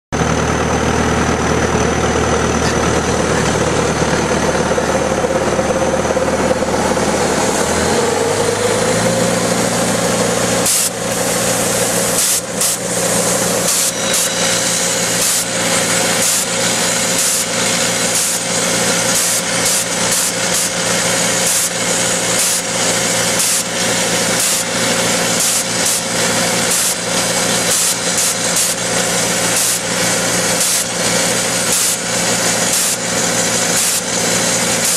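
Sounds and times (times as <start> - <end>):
tractor engine running: 0.1 - 34.9.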